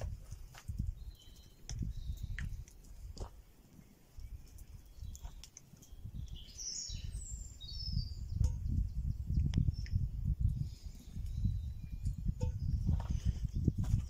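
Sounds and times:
wood fire crackling: 0.0 - 12.5
bird chirping: 0.8 - 2.8, 3.7 - 10.1, 10.7 - 13.3.

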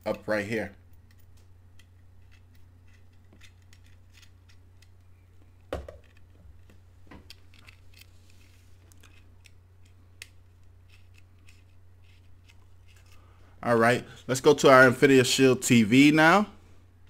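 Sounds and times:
steady low hum: 0.0 - 17.0
cable connector clicking and scraping: 0.9 - 5.1, 7.2 - 13.2.

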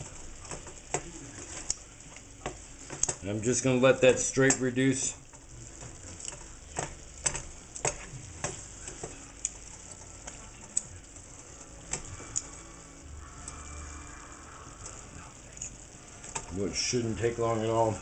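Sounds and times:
spatula tapping a pan: 0.0 - 1.8, 2.4 - 3.2, 4.4 - 4.7, 5.3 - 10.9
sauce sizzling in a pan: 0.0 - 18.0.

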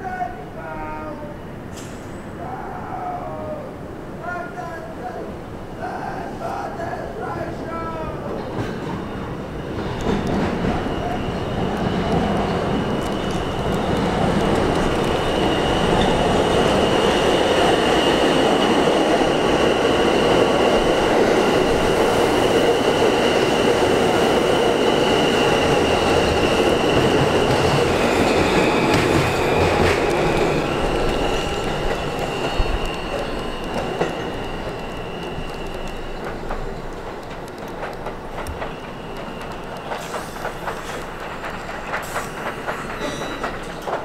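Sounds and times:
subway train rolling past: 0.0 - 44.0
train wheels squealing: 8.3 - 37.0, 38.2 - 44.0.

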